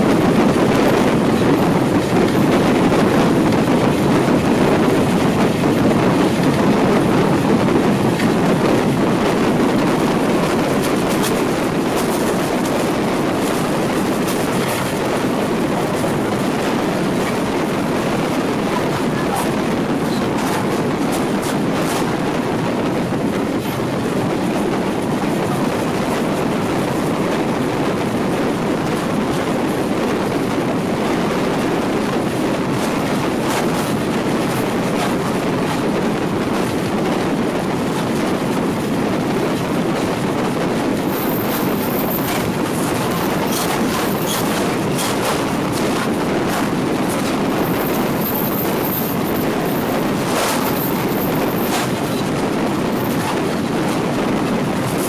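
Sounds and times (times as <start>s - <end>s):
train wheels rumbling on rail: 0.0s - 55.0s
rail joint clicks: 41.0s - 52.4s.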